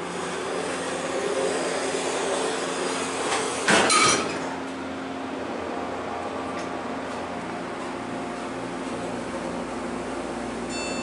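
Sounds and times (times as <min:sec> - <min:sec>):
elevator pump motor humming: 0:00.0 - 0:11.0
loud clunk: 0:03.6 - 0:04.5.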